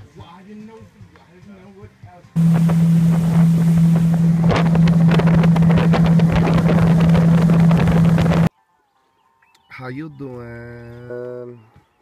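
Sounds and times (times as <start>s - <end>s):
boat motor running: 2.4s - 8.5s
wind buffeting microphone: 2.4s - 8.5s.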